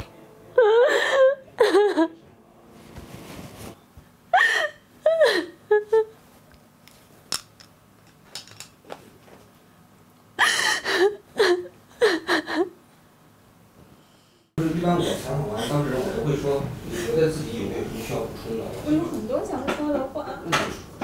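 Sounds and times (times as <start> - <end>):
young woman sobbing: 0.6 - 2.2, 4.3 - 6.1, 10.4 - 12.8.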